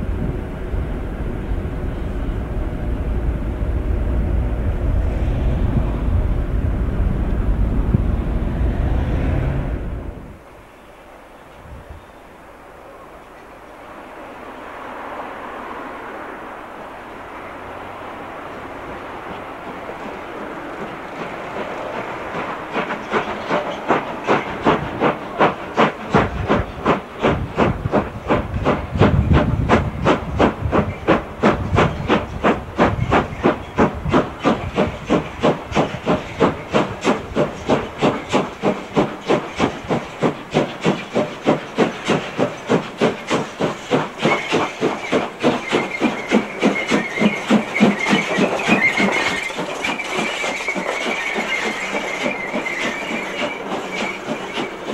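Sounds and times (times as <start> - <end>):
steam hiss: 12.1 - 54.9
steam locomotive exhaust chuffs: 18.4 - 54.9
wheel flanges squealing: 30.8 - 54.9.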